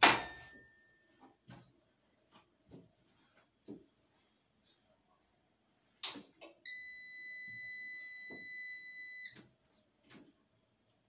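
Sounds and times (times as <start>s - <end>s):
high-pitched inverter beep: 6.7s - 9.4s.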